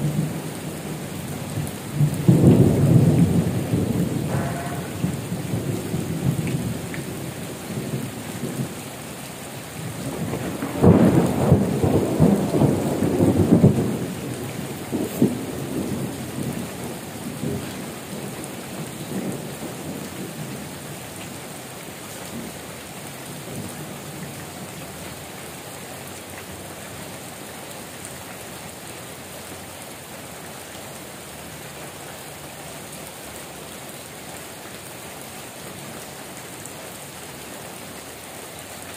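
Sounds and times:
heavy rain falling: 0.0 - 38.9
rolling thunder: 1.0 - 8.7, 9.9 - 20.7.

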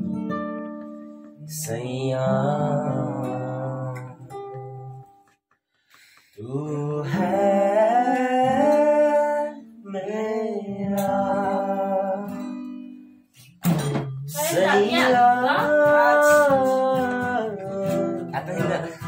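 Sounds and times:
acoustic guitar strumming: 0.0 - 19.0
man singing: 1.4 - 4.4, 6.4 - 12.6, 14.1 - 19.0.

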